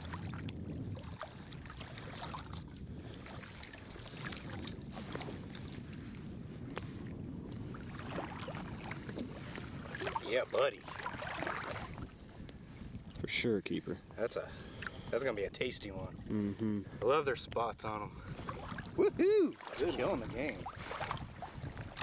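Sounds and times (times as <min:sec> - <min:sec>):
water sloshing around legs: 0:00.0 - 0:05.9, 0:07.7 - 0:12.6, 0:18.3 - 0:22.0
wind buffeting microphone: 0:00.0 - 0:22.0.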